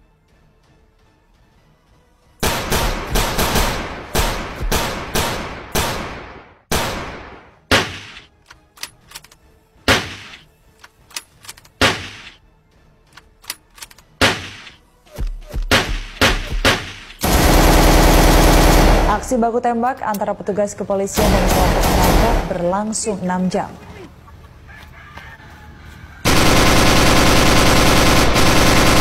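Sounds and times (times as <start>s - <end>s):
gunshots with echoing tails: 2.4s - 8.3s, 14.2s - 14.8s, 15.6s - 19.3s, 26.3s - 29.0s.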